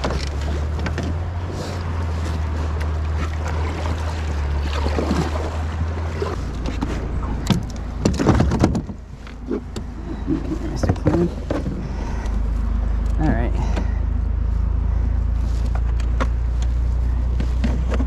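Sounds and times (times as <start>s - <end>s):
water sloshing against kayak hull: 0.0s - 11.8s.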